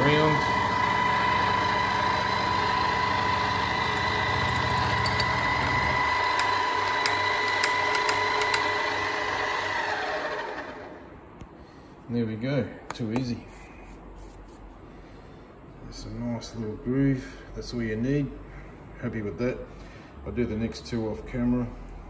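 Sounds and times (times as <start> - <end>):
milling machine spindle whine: 0.0 - 11.0.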